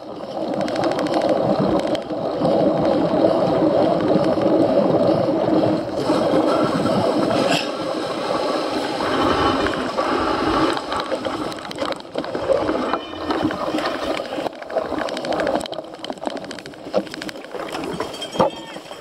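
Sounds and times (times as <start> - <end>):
bike chain and frame rattling: 0.0 - 19.0
bike tyres rumbling over ground: 0.0 - 19.0.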